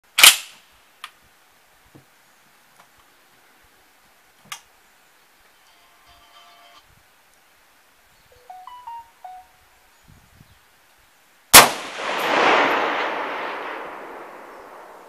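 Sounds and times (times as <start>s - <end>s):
rifle shot: 0.2s - 0.6s, 11.5s - 15.0s.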